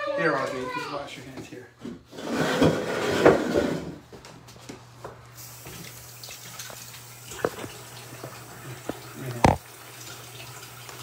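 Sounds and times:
faucet running into sink: 0:05.4 - 0:11.0
small knocks: 0:08.9 - 0:09.6.

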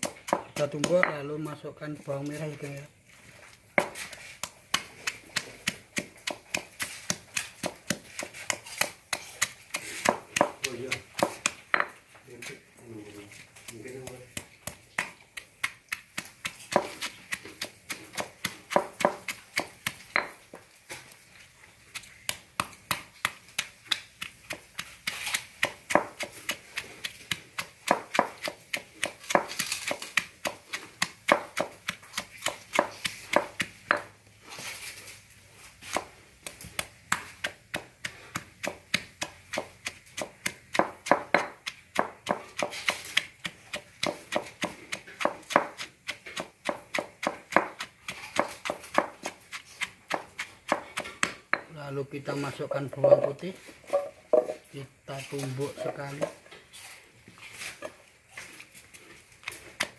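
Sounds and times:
stone pestle pounding in mortar: 0:00.0 - 0:01.6, 0:03.8 - 0:12.0, 0:13.6 - 0:20.6, 0:22.0 - 0:34.2, 0:35.9 - 0:51.8, 0:52.6 - 0:54.6.

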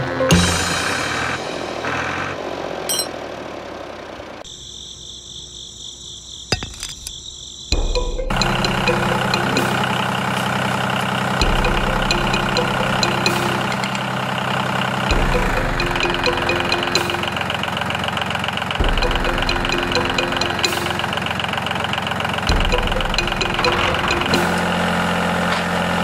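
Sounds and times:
high steady chirring: 0:07.8 - 0:25.0
diesel engine knocking: 0:07.8 - 0:26.0.

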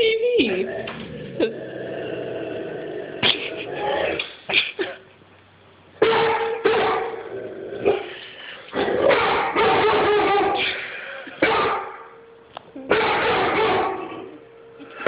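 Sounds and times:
dog barking: 0:06.0 - 0:07.2, 0:09.0 - 0:10.8, 0:11.4 - 0:12.1, 0:12.9 - 0:14.3.

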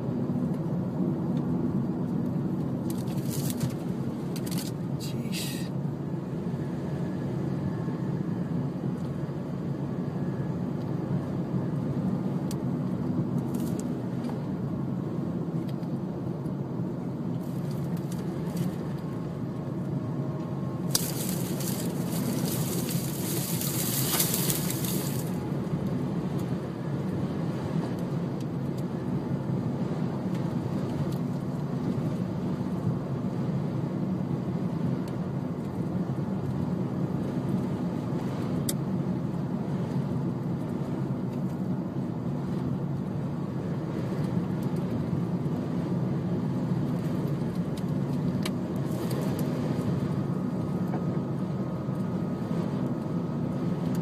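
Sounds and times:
car driving rumble inside cabin: 0:00.0 - 0:54.0.

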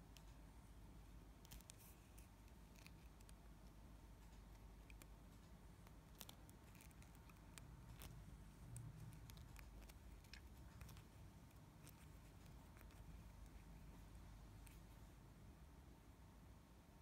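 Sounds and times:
fingers handling fishing line: 0:04.3 - 0:15.0.

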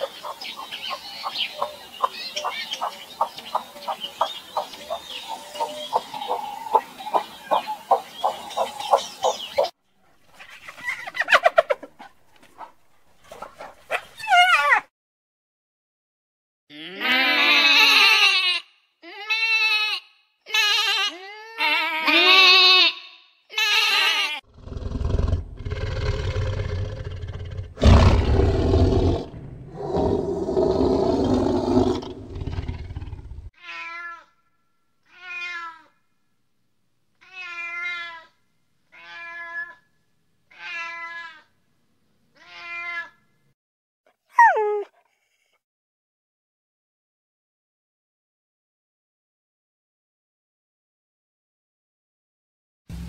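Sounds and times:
sheep bleating: 0:16.7 - 0:24.4
rough growl with deep rumble: 0:24.5 - 0:33.5
cat meowing: 0:33.6 - 0:34.3, 0:35.1 - 0:35.9, 0:37.2 - 0:38.3, 0:38.9 - 0:39.8, 0:42.4 - 0:43.2, 0:44.4 - 0:44.9
cry falling in pitch: 0:44.4 - 0:44.9.

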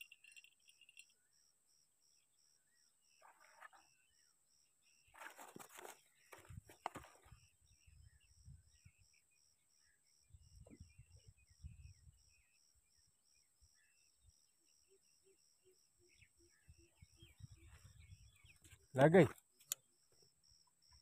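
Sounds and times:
insect chirping: 0:00.0 - 0:21.0.

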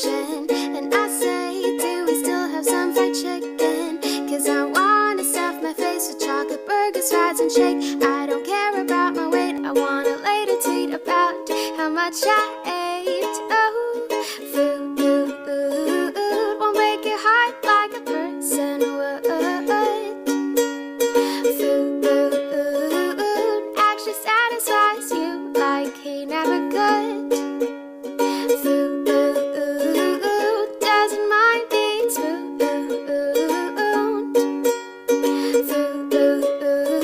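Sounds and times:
song with plucked strings: 0:00.0 - 0:37.0.

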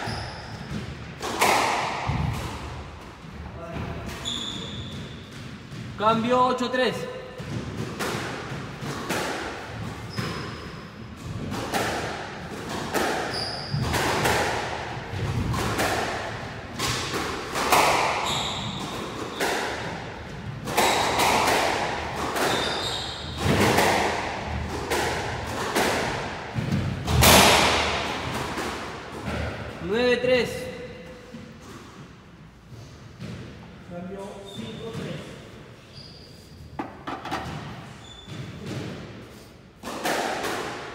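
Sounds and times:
shoes squeaking on wooden floor: 0:00.0 - 0:00.8, 0:04.2 - 0:05.3, 0:13.3 - 0:13.9, 0:18.2 - 0:18.9, 0:22.4 - 0:23.4, 0:34.4 - 0:38.6
squash ball hitting rackets and walls: 0:00.0 - 0:30.0, 0:31.2 - 0:40.9.

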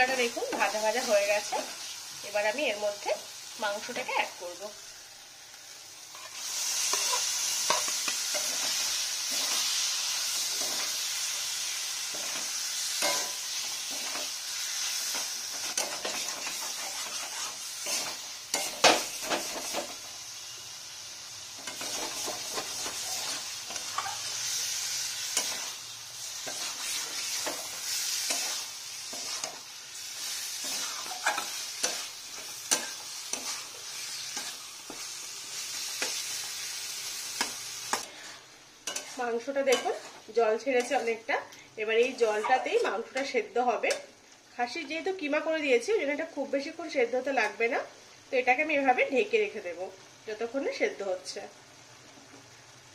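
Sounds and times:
meat sizzling: 0:00.0 - 0:52.9
metal spatula scraping: 0:06.1 - 0:11.4, 0:12.1 - 0:20.0, 0:21.6 - 0:36.4, 0:37.4 - 0:41.1, 0:42.0 - 0:43.3.

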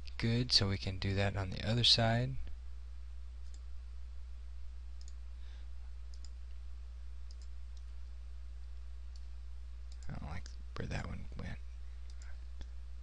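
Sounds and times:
steady low hum: 0:00.0 - 0:13.0
computer mouse clicks: 0:05.0 - 0:05.2, 0:06.1 - 0:06.4, 0:07.3 - 0:07.9, 0:09.9 - 0:10.6.

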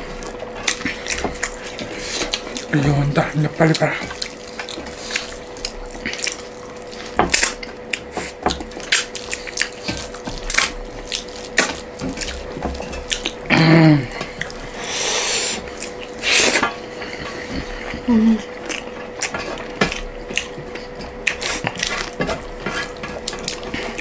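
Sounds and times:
wet chewing: 0:00.0 - 0:24.0
person humming: 0:13.4 - 0:14.4, 0:17.4 - 0:18.6.

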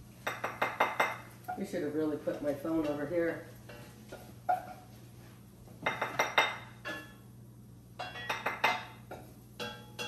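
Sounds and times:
utensil clinking against a pan: 0:08.0 - 0:10.0.

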